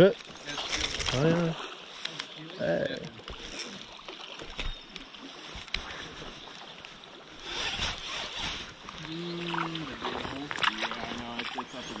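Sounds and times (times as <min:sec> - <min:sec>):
stream water hissing: 0:03.4 - 0:12.0.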